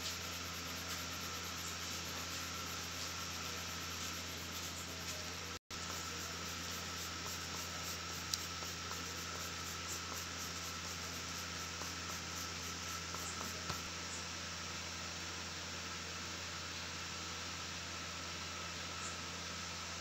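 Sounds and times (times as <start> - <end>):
steady hiss and low hum: 0.0 - 20.0.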